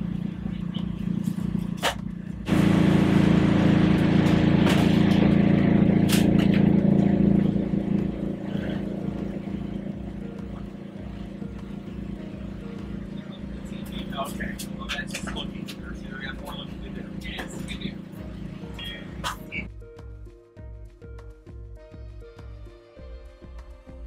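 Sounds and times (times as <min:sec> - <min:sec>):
steady machine hum: 0:00.0 - 0:19.7
loud rushing noise: 0:02.5 - 0:08.7.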